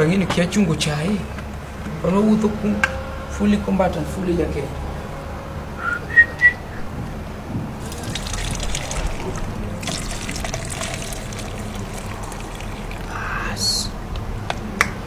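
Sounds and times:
tea trickling into mug: 7.8 - 13.6.

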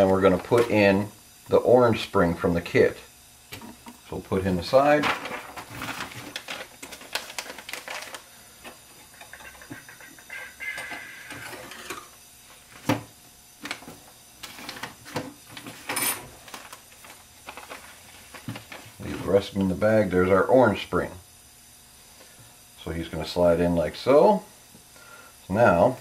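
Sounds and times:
paper rustling: 5.0 - 8.3, 15.6 - 19.3.

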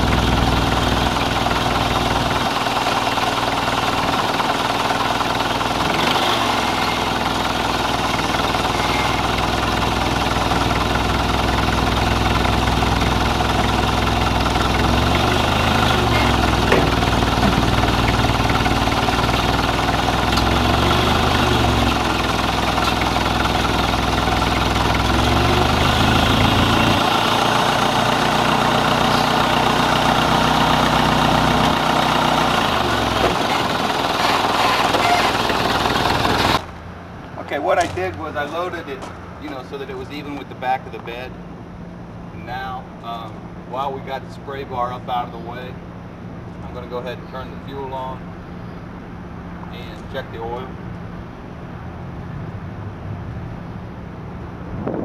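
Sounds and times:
steady mechanical noise: 0.0 - 36.8
vehicle engine idling: 0.0 - 55.0.

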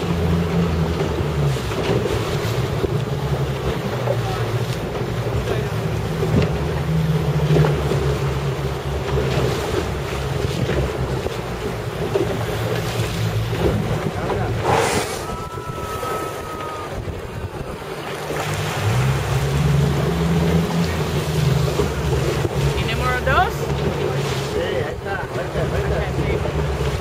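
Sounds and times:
boat engine idling: 0.0 - 27.0
sea washing against hull: 0.0 - 27.0
wind buffeting microphone: 9.6 - 27.0
short whoosh: 14.5 - 17.6.

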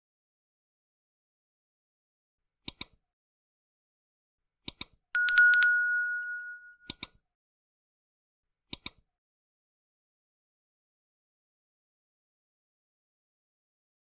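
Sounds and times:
mouse clicks: 2.6 - 3.0, 4.6 - 5.0, 6.9 - 7.2, 8.7 - 9.1
bright bell ding: 5.2 - 6.9.

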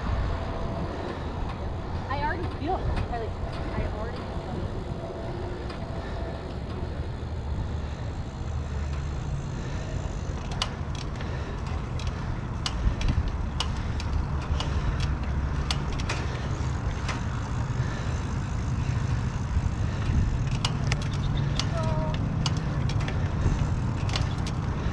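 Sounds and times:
bicycle clicks and rattles: 0.0 - 24.9
wind buffeting microphone: 0.0 - 24.9.

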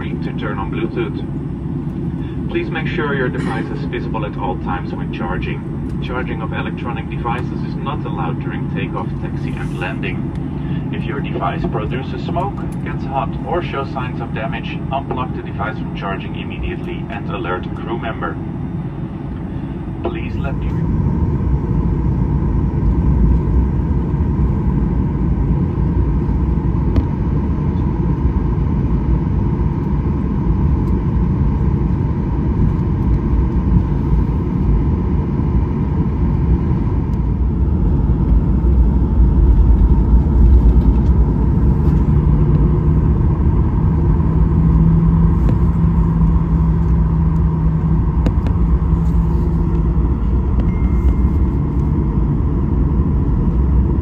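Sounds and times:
airplane cabin rumble: 0.0 - 54.0
lower hum: 0.0 - 54.0
steady hum: 0.0 - 54.0.

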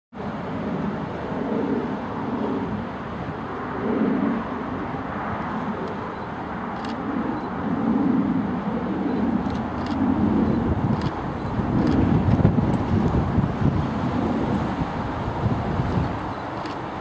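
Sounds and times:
distant diesel locomotive rumble: 4.4 - 17.0.

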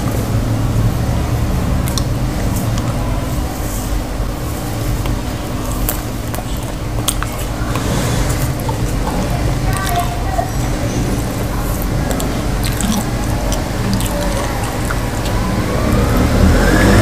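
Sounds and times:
steady low hum: 0.0 - 17.0
fingers squishing soft food: 4.5 - 16.4
mouth clicks from chewing: 11.8 - 15.4.

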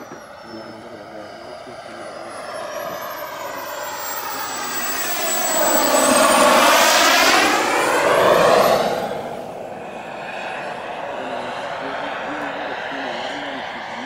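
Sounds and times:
model jet turbine whine: 0.0 - 14.0.

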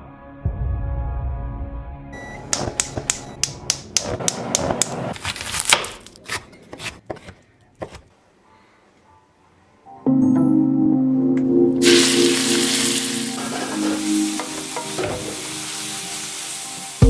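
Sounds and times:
knife chopping on cutting board: 2.5 - 8.1.

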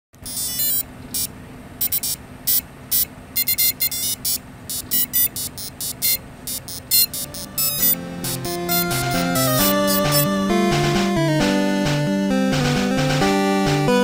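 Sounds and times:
high-pitched electronic beep melody: 0.3 - 10.6.

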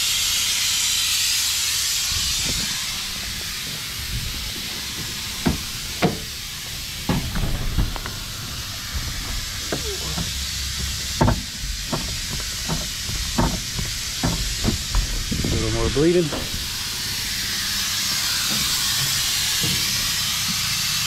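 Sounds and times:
steady hiss: 0.0 - 21.0
car door opening: 5.4 - 6.4, 7.0 - 15.6.

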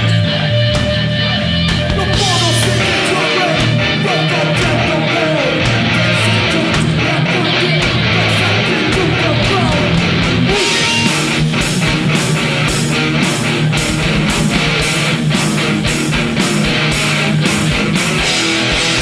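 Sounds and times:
drums and cymbals: 0.0 - 4.9, 8.9 - 19.0
loud electric guitars: 0.0 - 19.0.

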